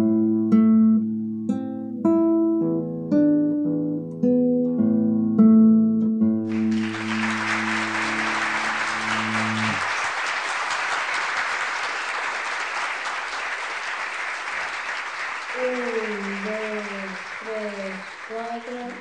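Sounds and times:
audience applause: 6.5s - 19.0s.

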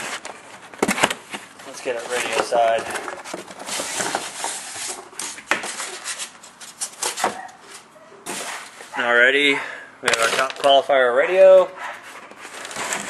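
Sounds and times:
cardboard box being opened: 0.0s - 6.3s.

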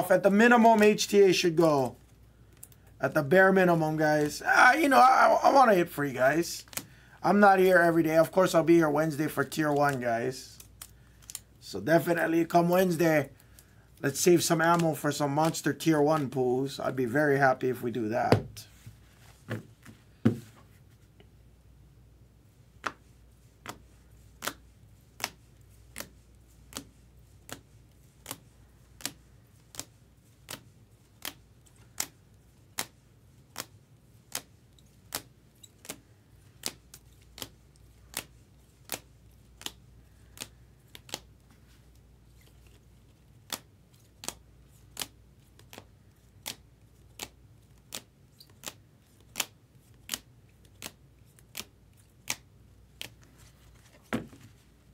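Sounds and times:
cards clicking onto a stack: 6.6s - 6.9s, 26.7s - 28.4s, 29.0s - 29.9s, 36.6s - 41.3s.

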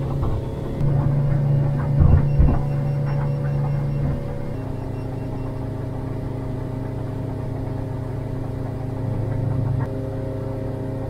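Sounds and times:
boat engine droning: 0.0s - 11.0s.

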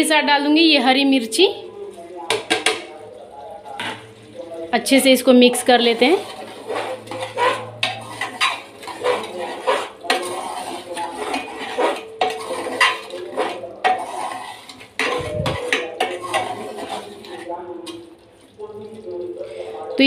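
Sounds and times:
metal spoon scraping metal pot: 5.3s - 18.1s.

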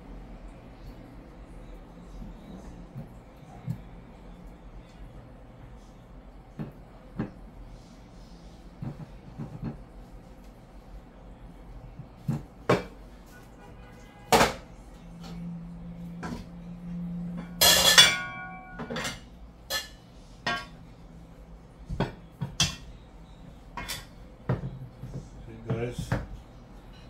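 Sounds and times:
cookware knocking and clinking: 17.4s - 20.8s, 21.9s - 22.9s, 23.8s - 24.8s.

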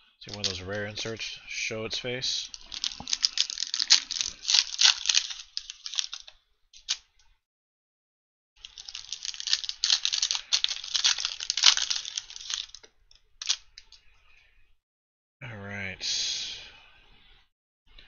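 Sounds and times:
foil wrapper crinkling and tearing: 0.3s - 0.9s, 2.4s - 7.0s, 8.6s - 13.8s.

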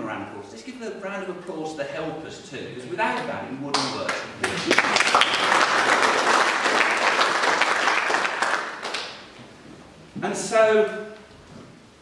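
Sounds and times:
audience applauding: 3.8s - 9.3s.

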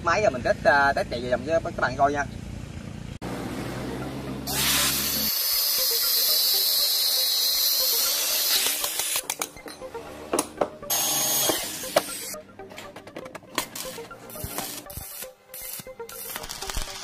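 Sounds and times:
angle grinder cutting steel: 4.4s - 9.4s, 10.9s - 12.4s, 13.6s - 17.0s.

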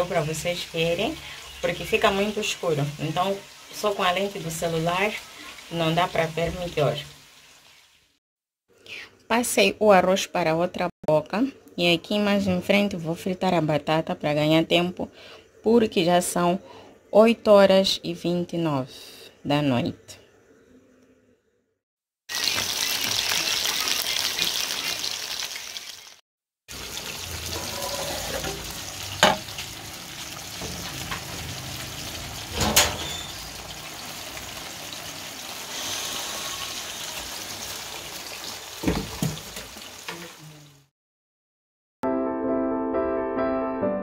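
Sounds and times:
chips sizzling in hot oil: 0.0s - 8.2s, 22.3s - 40.4s
pot bubbling: 26.7s - 40.0s.

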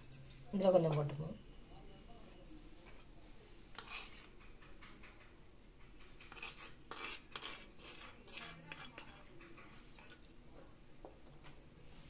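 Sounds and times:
spoon clinking against bowl: 6.4s - 10.7s.

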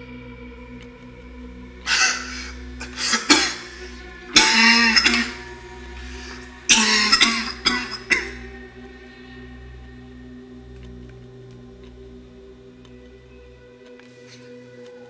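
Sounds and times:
droning music chord: 0.0s - 15.0s
person coughing hard: 1.9s - 8.4s.

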